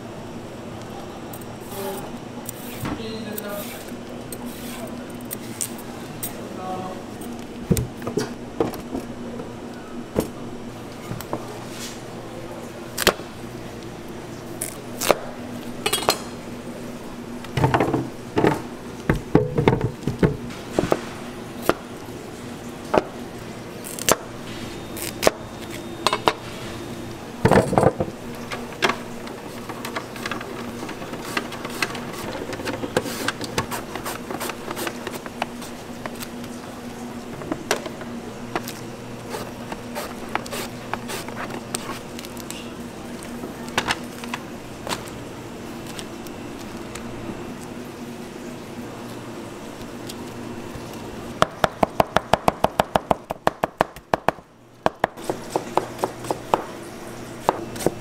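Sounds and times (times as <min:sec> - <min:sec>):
steady low hum: 0:00.0 - 0:58.0
knife chopping carrots on board: 0:51.6 - 0:56.7.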